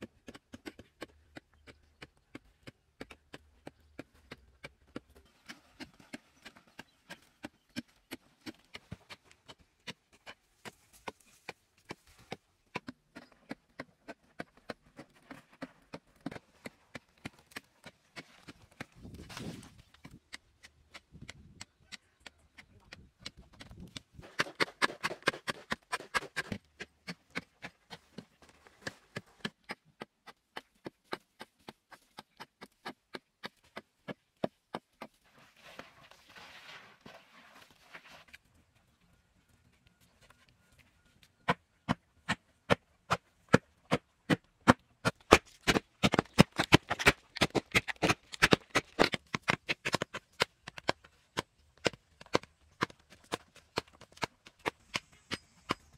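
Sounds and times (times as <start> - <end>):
hoes chopping hard soil: 0.0 - 35.2, 41.4 - 55.9
scraping and crumbling earth: 14.1 - 21.5, 35.2 - 40.8, 45.0 - 55.9.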